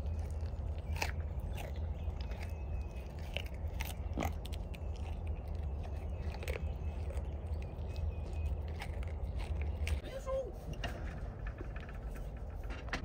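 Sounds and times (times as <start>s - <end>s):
goat crunching carrot: 0.0s - 12.7s
low rumble: 0.0s - 13.0s.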